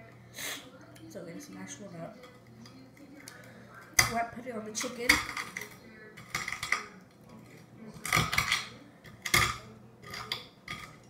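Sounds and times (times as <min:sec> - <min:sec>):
fork scraping a plate: 0:05.4 - 0:11.0.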